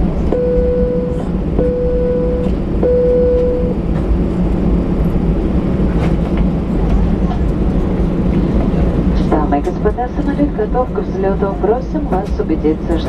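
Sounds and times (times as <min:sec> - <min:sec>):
mid-pitched humming tone: 0:00.0 - 0:05.2
aircraft engines rumbling: 0:00.0 - 0:13.0.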